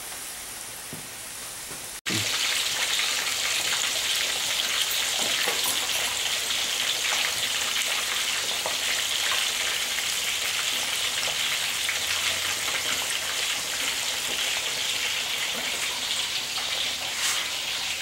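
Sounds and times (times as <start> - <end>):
fish deep-frying in hot oil: 0.0 - 18.0.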